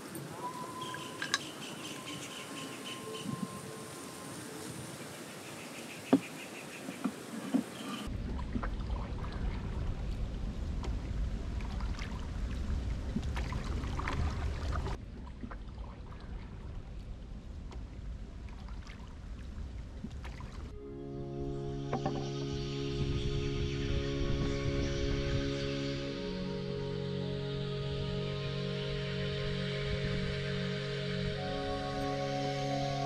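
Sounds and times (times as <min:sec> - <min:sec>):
water trickling: 0:00.0 - 0:20.8
paddle dipping through water: 0:03.2 - 0:20.8
low rumble: 0:08.1 - 0:31.8.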